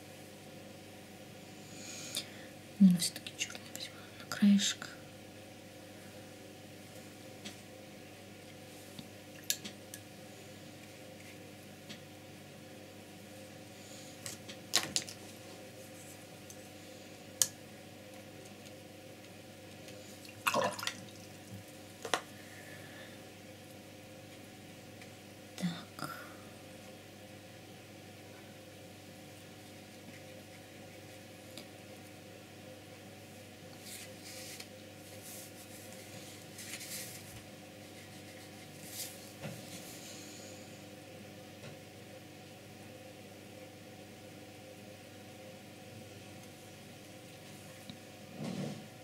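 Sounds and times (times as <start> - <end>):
low steady room noise: 0.0 - 49.0.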